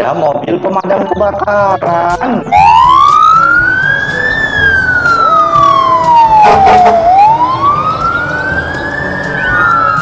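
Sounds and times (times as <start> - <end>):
toy siren wailing: 2.6 - 10.0.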